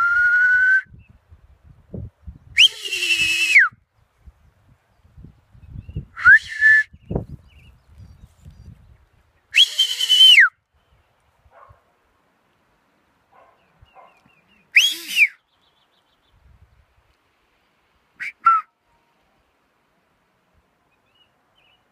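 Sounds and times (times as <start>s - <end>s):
sharp loud whistles: 2.6s - 3.8s, 6.1s - 7.0s, 9.6s - 10.6s, 14.8s - 15.4s, 18.2s - 18.8s.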